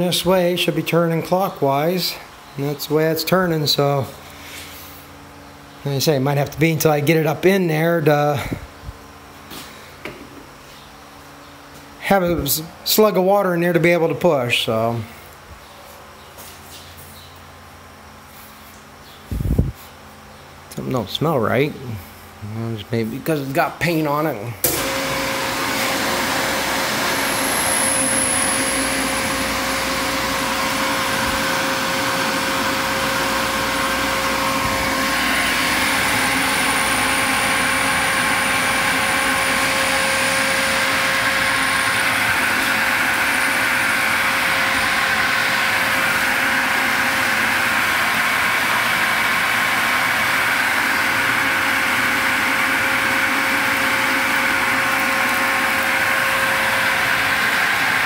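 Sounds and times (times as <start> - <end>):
electric pump motor humming: 24.6 - 58.0.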